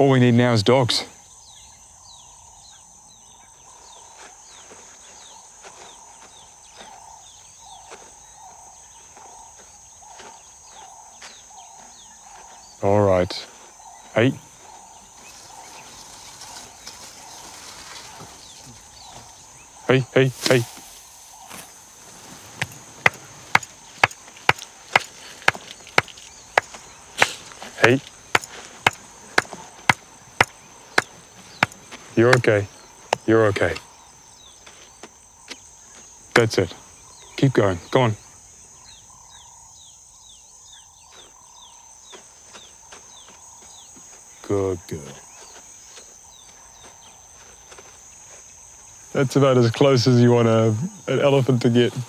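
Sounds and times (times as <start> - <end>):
falling bird chirps: 0.0 - 49.2
high insect drone: 0.0 - 52.0
sharp snaps and knocks: 22.6 - 31.8.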